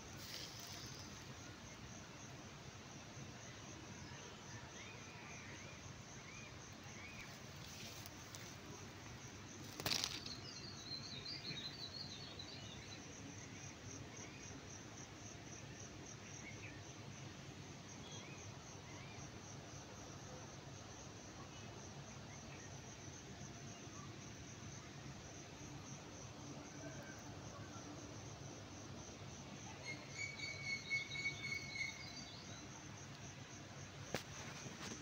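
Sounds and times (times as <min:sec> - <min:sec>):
bird chirps: 0:29.8 - 0:32.5.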